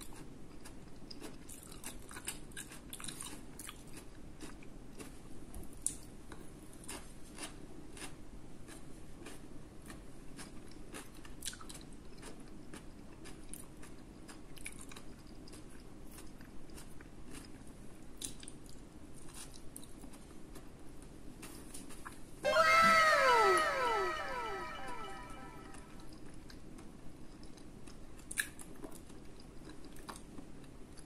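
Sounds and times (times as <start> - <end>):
person chewing food: 0.0 - 22.2, 26.8 - 31.0.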